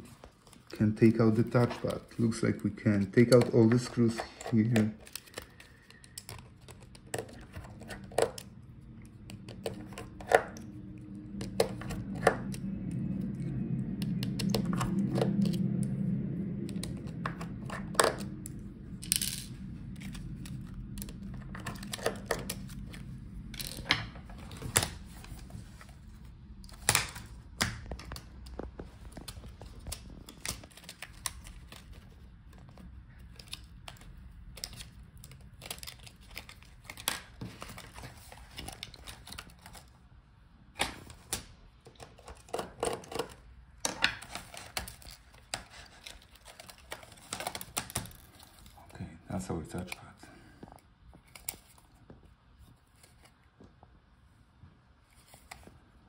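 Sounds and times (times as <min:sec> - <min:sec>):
low hum: 0:00.0 - 0:56.0.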